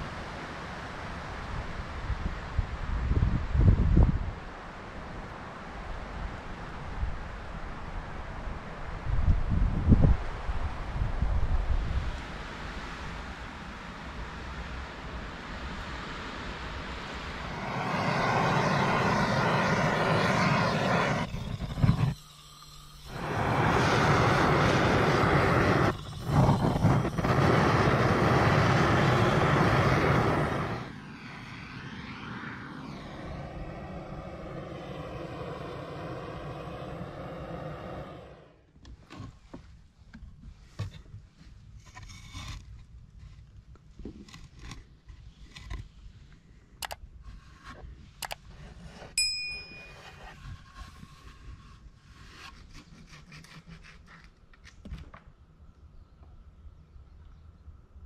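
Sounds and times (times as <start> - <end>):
wavering hum: 17.4 - 38.6.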